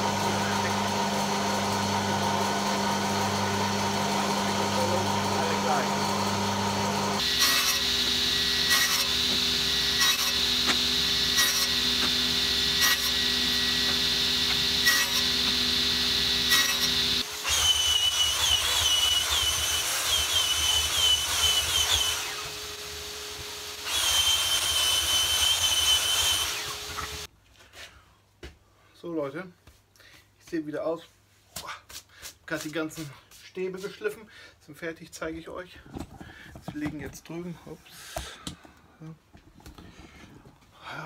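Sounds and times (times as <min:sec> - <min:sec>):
electric sander whine: 0:00.0 - 0:27.3
table saw running: 0:00.0 - 0:27.3.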